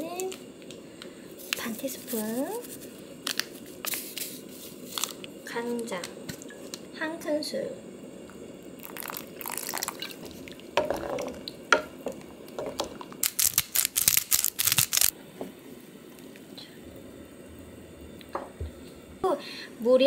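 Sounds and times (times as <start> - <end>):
sauce pouring into broth: 8.8 - 13.4
pepper grinder clicks: 13.2 - 15.1.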